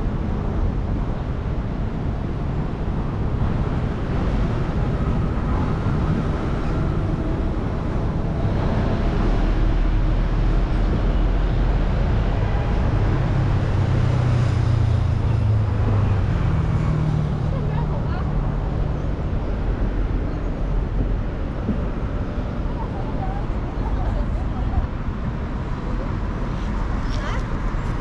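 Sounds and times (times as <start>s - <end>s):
low engine hum: 0.0s - 28.0s
road traffic noise: 0.0s - 28.0s.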